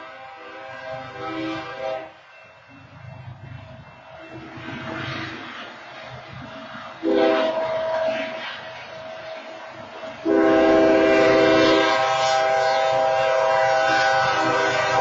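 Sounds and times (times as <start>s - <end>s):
locomotive air horn blasts: 0.0s - 2.2s, 7.0s - 8.4s, 10.2s - 15.0s.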